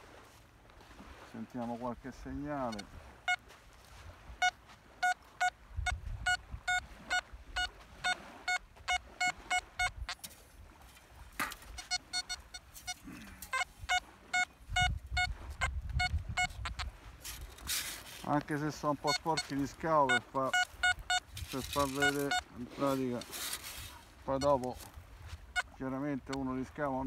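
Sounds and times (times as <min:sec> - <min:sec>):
metal detector beeping: 0:02.6 - 0:03.5, 0:04.4 - 0:10.3, 0:11.4 - 0:16.9, 0:18.4 - 0:24.8, 0:25.4 - 0:26.5.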